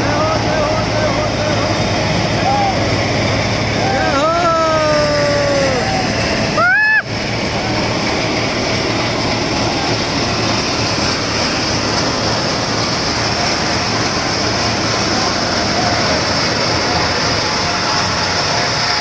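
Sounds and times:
diesel engine roaring: 0.0 - 19.0
short rising cry: 2.0 - 7.2.

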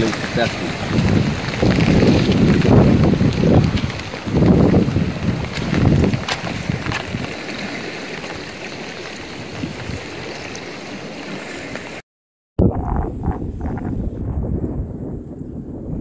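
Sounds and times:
floodwater rushing: 0.0 - 12.0
rough loud noise: 12.6 - 15.3.

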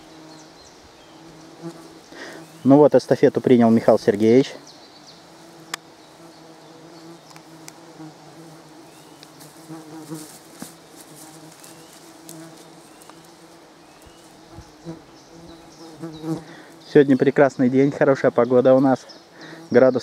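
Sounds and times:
flying insect buzzing: 0.0 - 17.7, 18.3 - 20.0
soft clicks: 7.2 - 7.8.

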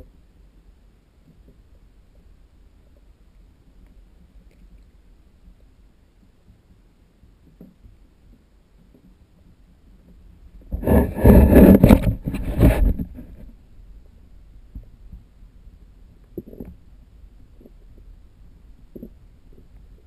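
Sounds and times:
muffled underwater rumbling: 7.7 - 20.0.

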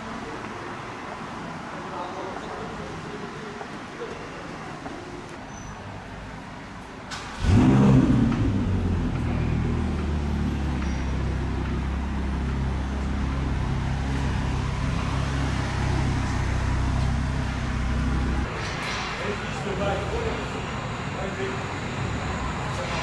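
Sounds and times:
vehicle engine running: 7.4 - 18.5, 19.8 - 23.0.

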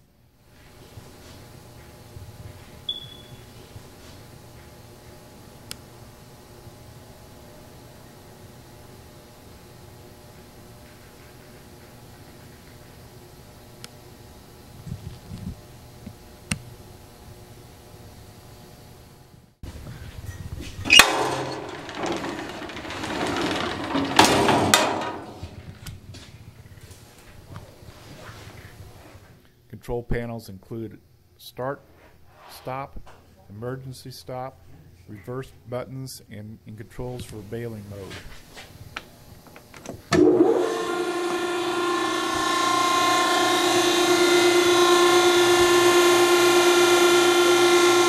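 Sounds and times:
baler motor whine and hum: 19.7 - 26.8, 39.4 - 48.0
metal gate banging: 20.8 - 25.8
metal mesh gate rattling: 20.8 - 25.8.

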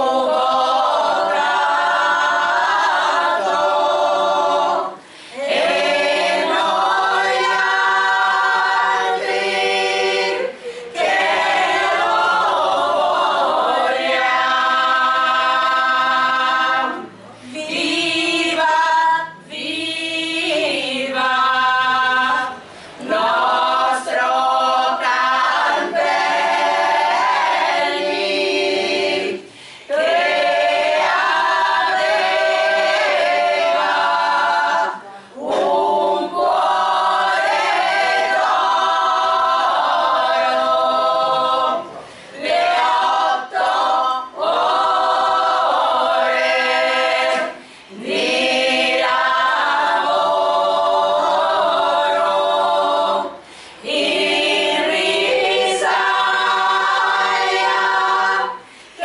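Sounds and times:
women's choir singing a cappella: 0.0 - 59.0.

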